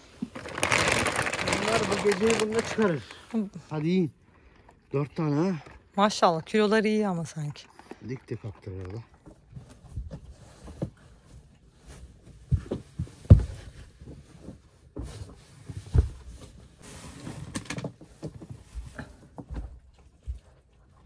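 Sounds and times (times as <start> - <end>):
fabric rustling and scraping: 9.7 - 19.0.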